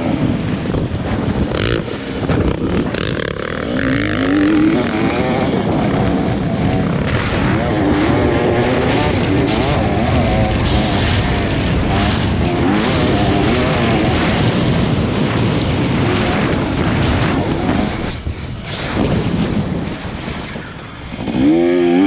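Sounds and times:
dirt bike engine revving: 0.0s - 20.0s, 21.1s - 22.0s.

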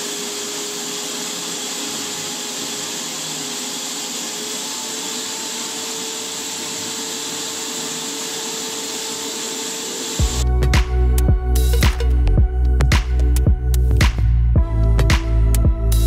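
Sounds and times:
paint spray gun whine: 0.0s - 10.5s
music: 10.2s - 16.0s.

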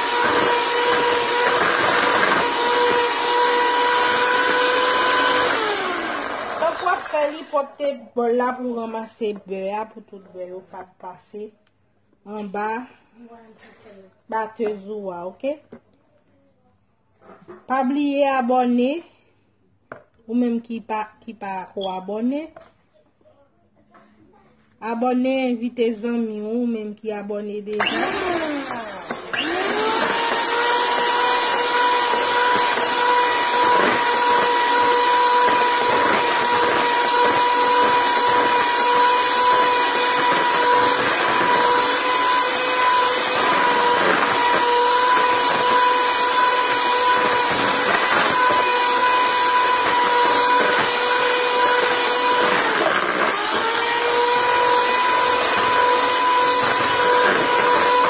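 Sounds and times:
electric hand mixer whining: 0.0s - 7.7s, 27.7s - 58.0s.

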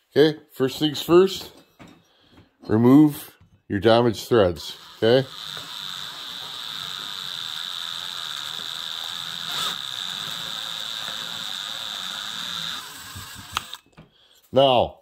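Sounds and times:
cordless drill whining: 4.6s - 14.0s.

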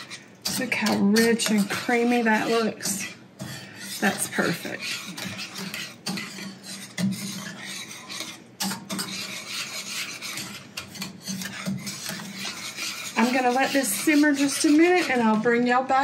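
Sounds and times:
spoon scraping pan bottom: 0.0s - 16.0s
spoon stirring thick gravy: 0.0s - 16.0s.

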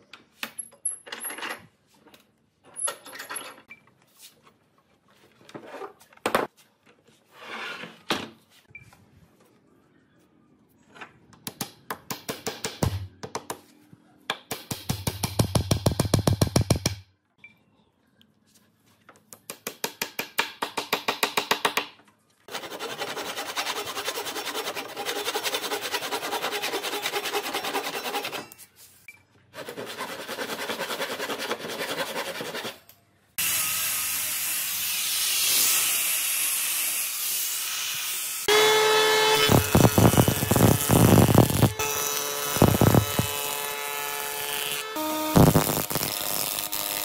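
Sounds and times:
hand saw cutting wood: 22.5s - 28.6s, 29.6s - 32.8s
angle grinder sanding wood: 37.9s - 43.6s.

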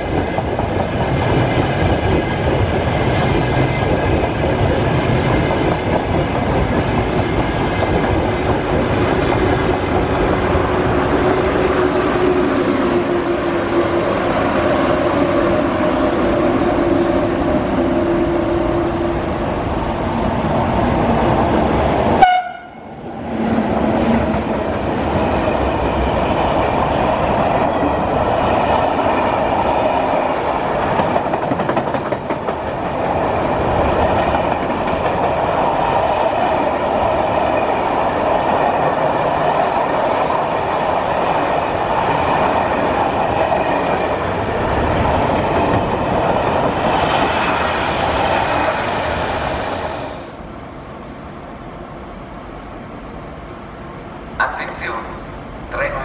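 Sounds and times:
loud train horn blast: 22.2s - 23.0s.

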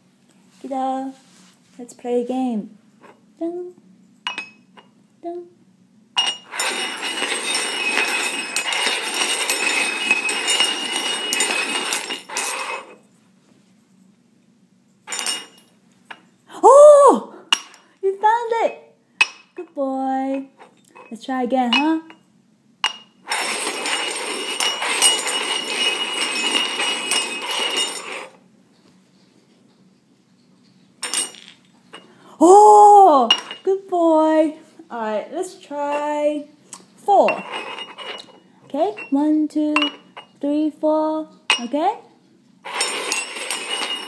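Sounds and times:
metal cups clinking: 4.3s - 4.9s, 6.2s - 13.0s, 15.1s - 16.3s, 17.5s - 17.9s, 20.3s - 22.2s, 22.8s - 28.4s, 31.0s - 32.2s, 33.3s - 33.7s, 37.2s - 40.4s, 41.5s - 41.8s, 42.6s - 44.0s
steel cups sliding on hard floor: 6.2s - 13.1s, 15.1s - 16.3s, 22.9s - 32.2s, 37.1s - 40.4s, 42.6s - 44.0s.

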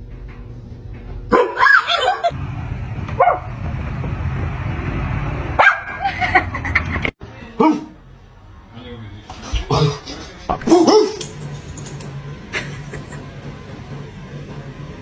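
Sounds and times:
dog barking and whining: 1.3s - 2.1s, 10.6s - 11.3s.

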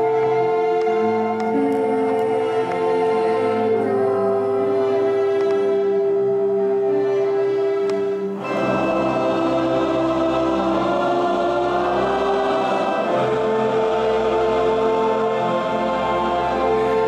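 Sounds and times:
string orchestra: 0.0s - 17.0s
men's choir singing: 8.4s - 17.0s.

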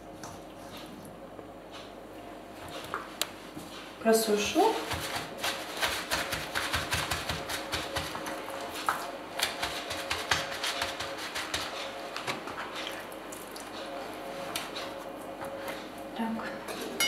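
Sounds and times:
paper towel patting and rustling: 4.8s - 12.9s.

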